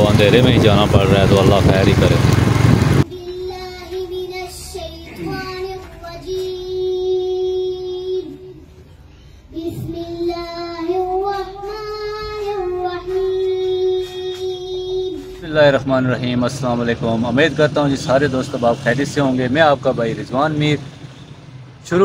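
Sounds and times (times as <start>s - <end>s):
girl chanting into microphone: 3.1s - 8.6s, 9.6s - 15.4s.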